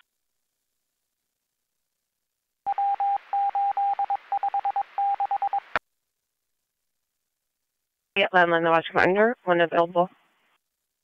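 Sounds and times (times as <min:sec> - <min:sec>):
morse code beeps: 0:02.7 - 0:05.7.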